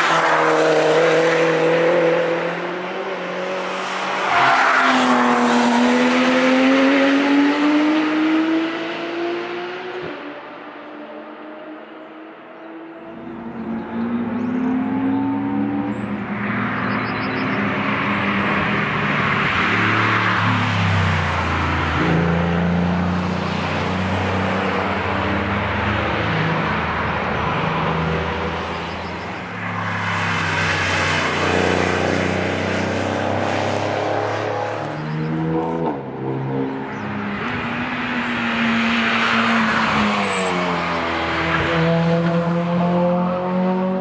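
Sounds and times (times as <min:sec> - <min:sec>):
car engine revving: 0:13.1 - 0:44.0
race car engine accelerating: 0:38.8 - 0:44.0.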